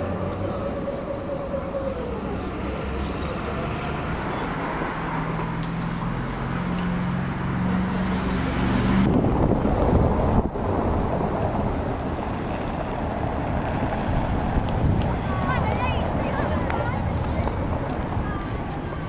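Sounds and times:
tram motor humming: 0:00.0 - 0:07.8
street noise: 0:00.0 - 0:19.0
wind buffeting microphone: 0:08.8 - 0:19.0.

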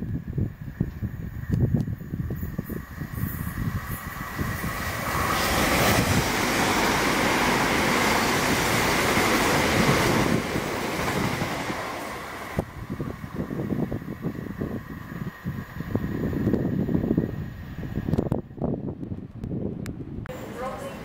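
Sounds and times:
train passing at speed: 0:00.0 - 0:21.0.

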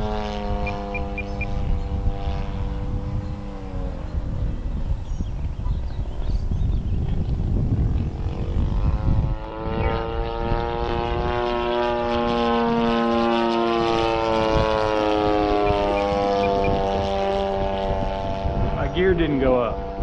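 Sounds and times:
model airplane engine droning: 0:00.0 - 0:20.0
wind rumble on microphone: 0:00.0 - 0:20.0.

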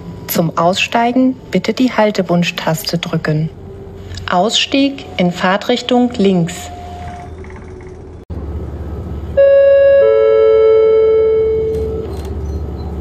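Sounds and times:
train rumble: 0:00.0 - 0:10.9
two-note announcement chime: 0:09.4 - 0:12.0.

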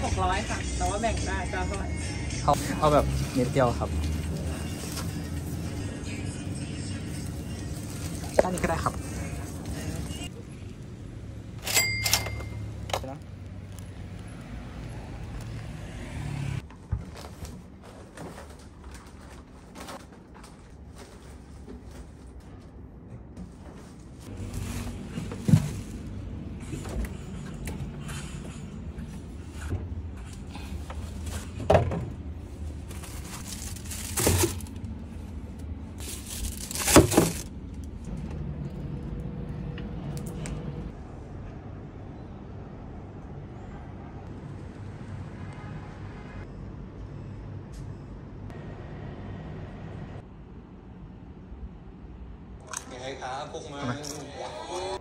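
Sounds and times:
outdoor background rumble: 0:00.0 - 0:52.6
refrigerator shelves rattling: 0:31.1 - 0:35.0, 0:36.0 - 0:37.6.

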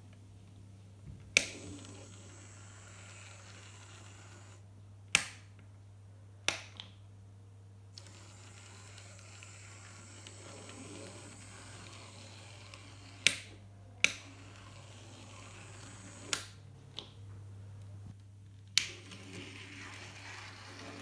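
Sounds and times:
model locomotive humming: 0:01.6 - 0:04.6, 0:08.0 - 0:16.5.

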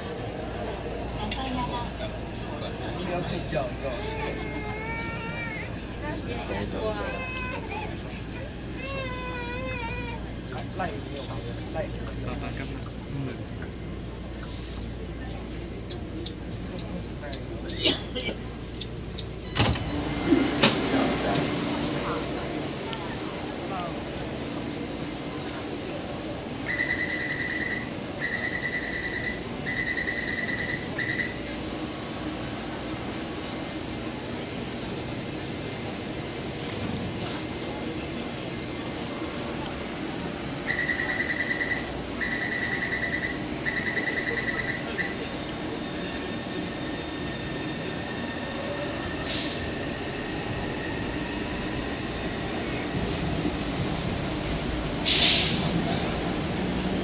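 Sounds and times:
steady train and station hum: 0:00.0 - 0:57.0
high-pitched warning beeps: 0:26.7 - 0:31.4, 0:40.6 - 0:45.3
brief hiss: 0:55.0 - 0:55.8.

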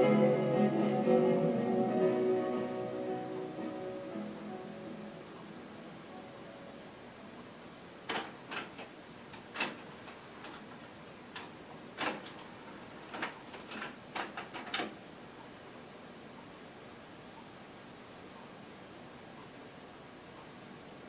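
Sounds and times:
steady low hiss: 0:00.0 - 0:21.0
cassette tape transport clicking: 0:08.0 - 0:15.0.

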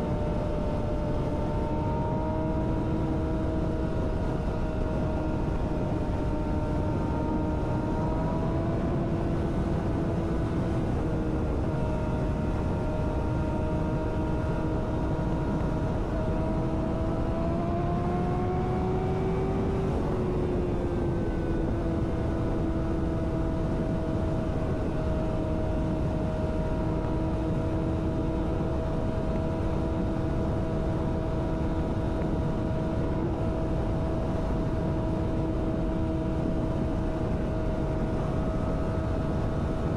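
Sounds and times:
motorcycle engine droning: 0:00.0 - 0:39.9
wind rush on microphone: 0:00.0 - 0:39.9.

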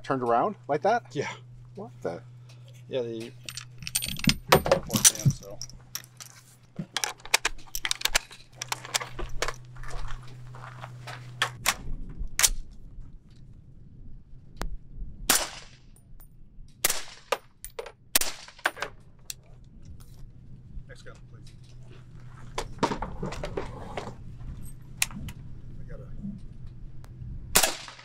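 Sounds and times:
suppressed rifle shots: 0:27.5 - 0:28.0.

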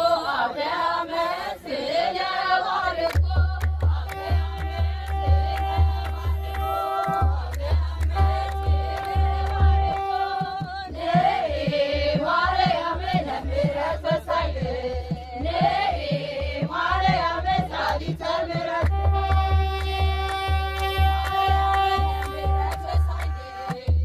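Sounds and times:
person singing a hymn: 0:00.0 - 0:24.0
low drumbeats: 0:03.1 - 0:24.0
held steady tone: 0:04.2 - 0:10.4.

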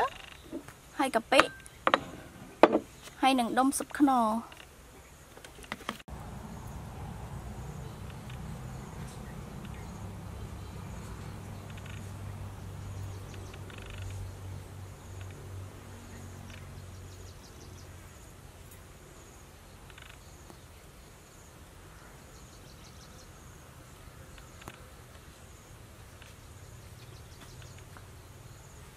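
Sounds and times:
steady low hum: 0:06.1 - 0:28.9.

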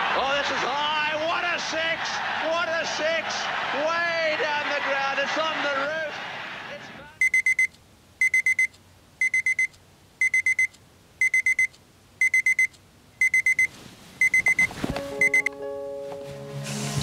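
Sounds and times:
alarm clock beeping: 0:07.2 - 0:15.6.

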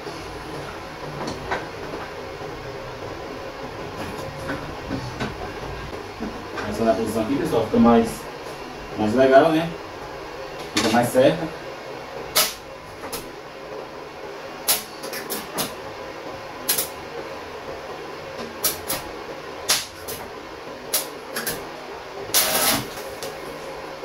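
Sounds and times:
rough welding burst: 0:22.3 - 0:23.0.

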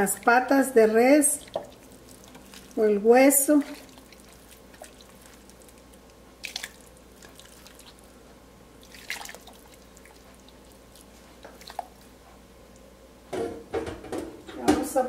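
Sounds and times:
water splashing in a pot: 0:01.3 - 0:08.1, 0:08.8 - 0:12.0.

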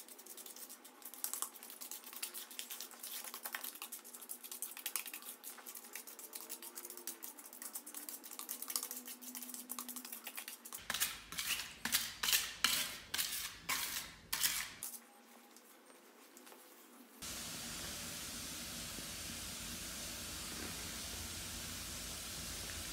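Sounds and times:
spreader scraping grout on tiles: 0:01.8 - 0:15.0
steady hiss: 0:17.2 - 0:22.9.

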